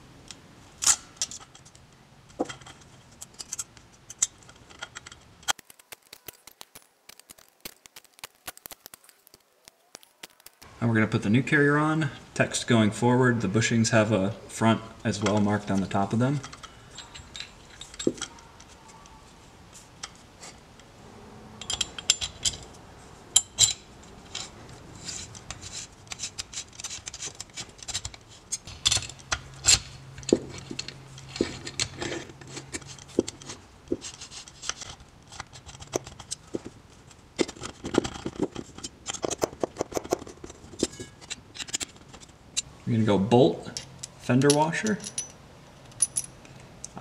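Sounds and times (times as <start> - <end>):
allen key clicking on bolts: 21.6 - 22.8.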